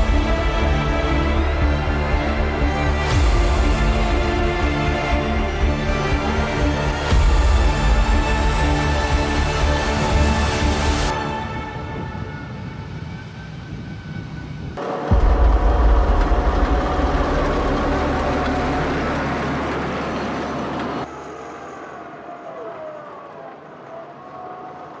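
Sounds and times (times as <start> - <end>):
tracked vehicles rumbling: 14.8 - 25.0.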